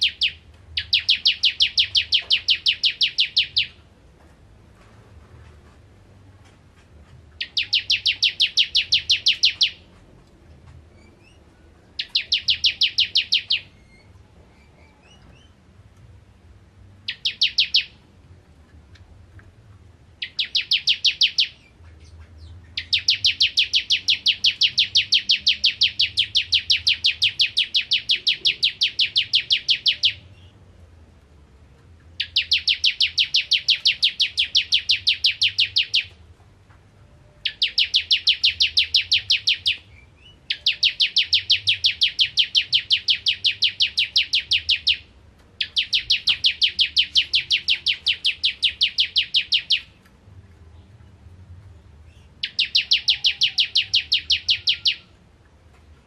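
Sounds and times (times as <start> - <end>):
bird singing rapid rattling song: 0.0 - 3.8, 7.4 - 9.9, 11.0 - 15.6, 17.0 - 18.0, 20.2 - 30.6, 32.2 - 36.2, 37.4 - 50.0, 52.0 - 55.2.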